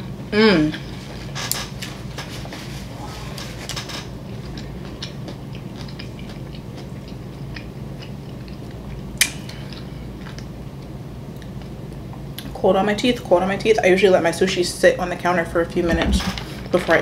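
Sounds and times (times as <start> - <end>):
wet chewing clicks: 4.3 - 11.7.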